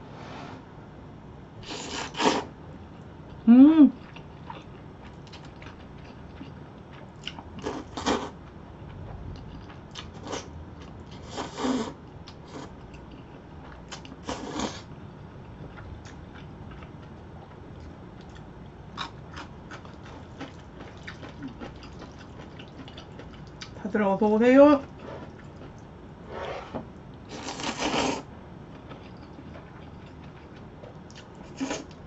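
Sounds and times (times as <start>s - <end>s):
chewing: 4.0s - 11.2s, 12.3s - 23.8s, 24.8s - 25.9s, 27.4s - 32.0s
wet noodle slurps: 27.3s - 28.2s.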